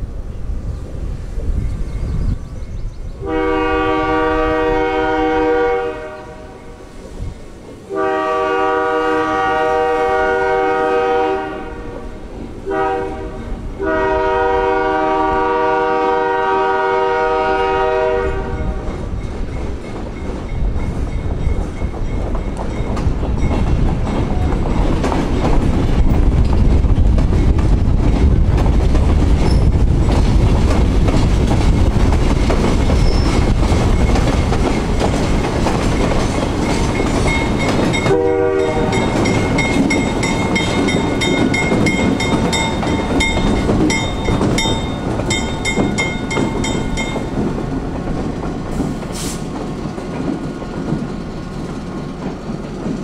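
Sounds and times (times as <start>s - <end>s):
train rumble and rail noise: 0.0s - 53.0s
train horn blasts: 3.2s - 6.8s, 7.9s - 19.0s, 37.9s - 39.6s.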